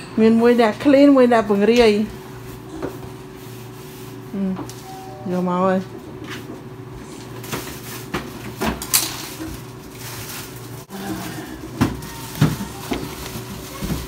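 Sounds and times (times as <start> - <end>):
knocks and clatter of handling: 11.7 - 14.0.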